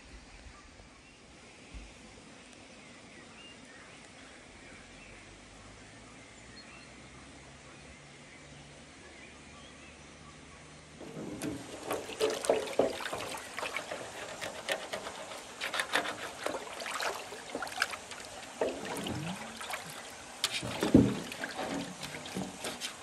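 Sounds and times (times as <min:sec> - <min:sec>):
water splashing in plastic basin: 0:11.0 - 0:23.0.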